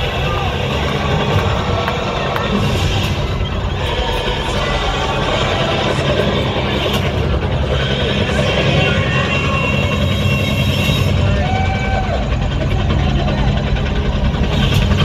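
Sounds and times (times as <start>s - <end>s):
crowd shouting and cheering: 0.0s - 15.0s
low rumble from loudspeakers: 0.0s - 15.0s.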